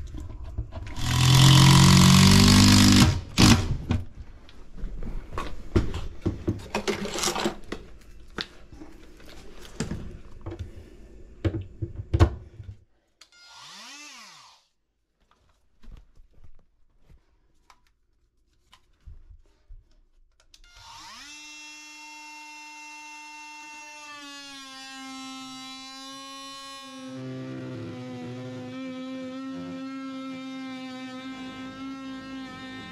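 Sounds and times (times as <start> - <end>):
oscillating multi-tool whine: 13.3 - 14.7, 20.7 - 32.9.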